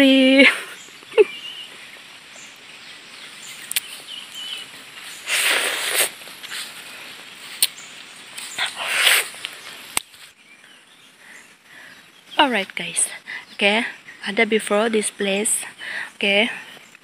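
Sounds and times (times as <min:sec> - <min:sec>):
woman slurping fruit pulp: 0:05.2 - 0:06.6, 0:08.6 - 0:09.4.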